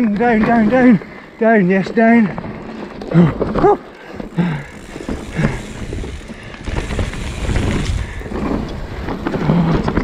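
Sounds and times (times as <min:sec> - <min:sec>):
bike rattling: 0:00.0 - 0:10.0
bike tyres on dirt: 0:00.0 - 0:10.0
wind rumble on microphone: 0:05.2 - 0:10.0.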